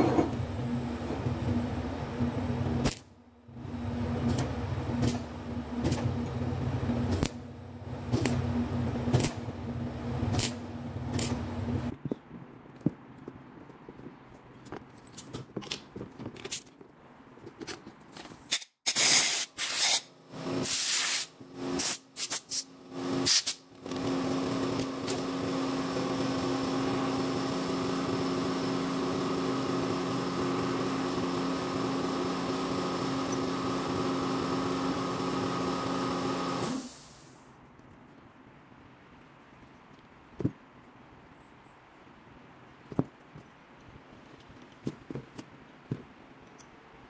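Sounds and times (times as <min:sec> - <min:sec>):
short hissing blasts: 0:18.9 - 0:23.6, 0:36.6 - 0:37.5.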